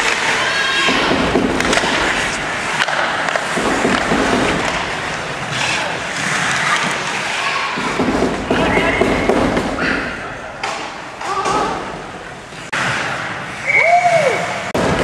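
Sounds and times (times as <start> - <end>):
hockey sticks and puck clacking: 0.0 - 15.0
skate blades scraping ice: 1.6 - 9.9, 12.6 - 14.7.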